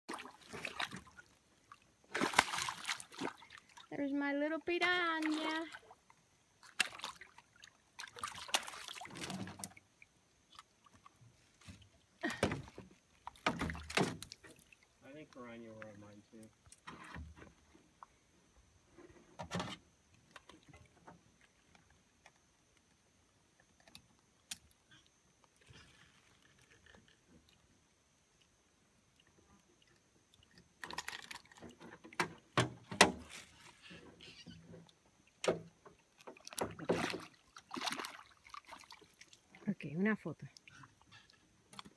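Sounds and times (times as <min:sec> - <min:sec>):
fish splashing in water: 0:00.1 - 0:03.9, 0:06.6 - 0:11.2, 0:30.4 - 0:31.8, 0:35.5 - 0:39.6
water splashing and dripping: 0:00.1 - 0:16.8, 0:29.1 - 0:41.9.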